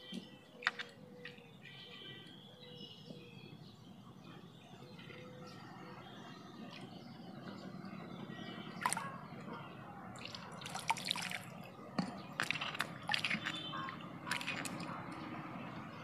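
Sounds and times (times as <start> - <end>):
water splashing in a bowl: 0.2 - 1.4, 8.7 - 16.0.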